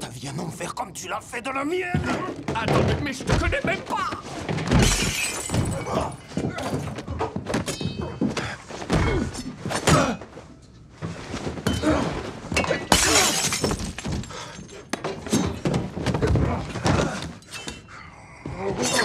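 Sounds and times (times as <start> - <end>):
things breaking: 2.0 - 8.4, 11.7 - 17.4
glass shattering: 4.7 - 6.9, 12.6 - 15.6.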